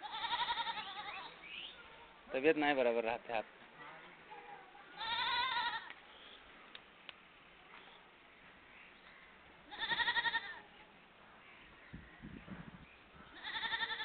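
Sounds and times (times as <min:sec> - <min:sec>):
goat bleating: 0:00.0 - 0:01.4, 0:04.6 - 0:05.9, 0:09.7 - 0:10.6, 0:13.3 - 0:14.0.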